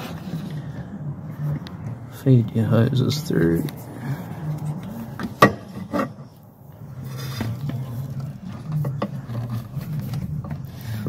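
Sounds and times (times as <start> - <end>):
sharp knocks against engine parts: 5.2 - 6.0.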